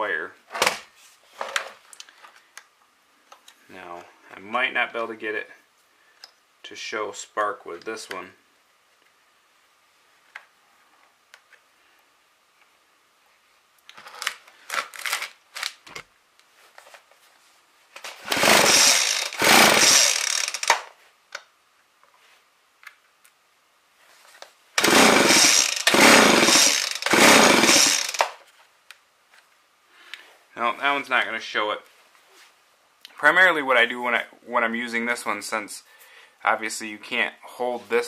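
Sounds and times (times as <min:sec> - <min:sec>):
recoil starter cord rips: 0:13.9 - 0:16.0, 0:18.0 - 0:20.9, 0:24.8 - 0:28.4
chainsaw engine turning over: 0:18.2 - 0:20.9, 0:24.8 - 0:28.4.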